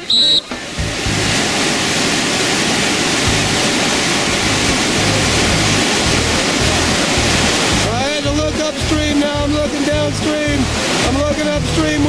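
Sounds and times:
whitewater rapids rushing: 0.0 - 12.0
low bass music: 0.8 - 1.4, 3.3 - 3.6, 4.3 - 12.0.

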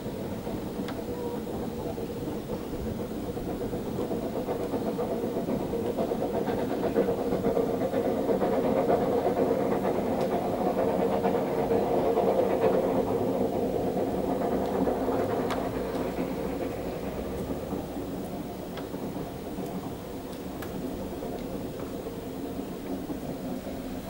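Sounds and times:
distant steam train rumble: 0.0 - 24.0.

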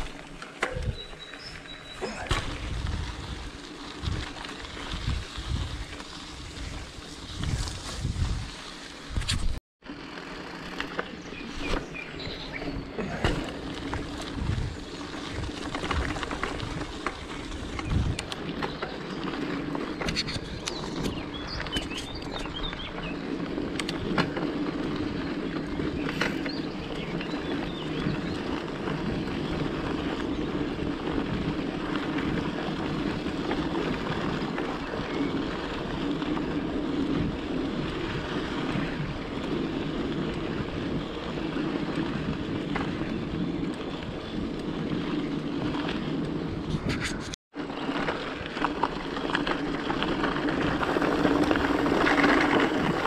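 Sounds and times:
bike tyres rumbling on stony track: 0.0 - 53.0
bike knocking over stones: 2.0 - 6.2, 13.0 - 22.6
wind on microphone: 2.4 - 9.6, 12.2 - 18.4, 25.7 - 47.4.

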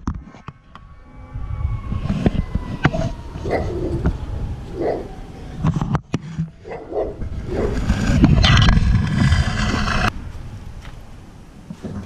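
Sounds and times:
low rumble: 0.5 - 11.6
dog barking: 3.5 - 3.9, 4.8 - 5.1, 6.6 - 7.8
loud rushing noise: 7.1 - 11.2.

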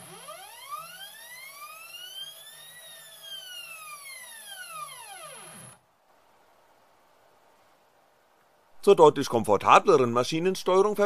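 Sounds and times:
stepper motor whine: 0.0 - 5.8
faint high-pitched whine: 0.0 - 11.0.

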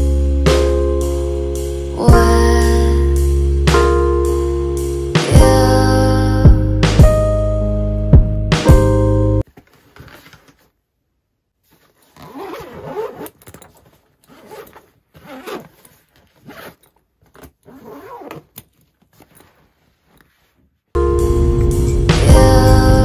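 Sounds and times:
backpack zipper being pulled: 11.9 - 20.4.

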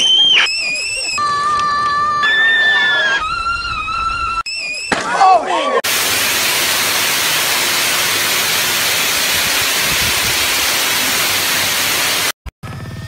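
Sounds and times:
hose spraying water: 5.8 - 12.4.

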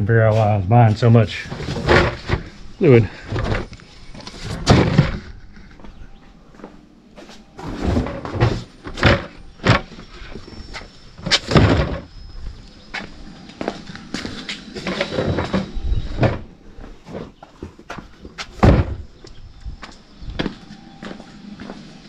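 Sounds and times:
cardboard scraping and rustling: 1.4 - 2.5, 7.6 - 12.1
boxes thumping and knocking: 1.5 - 2.5, 4.6 - 5.4, 7.6 - 10.0, 11.2 - 12.1, 14.8 - 19.1.

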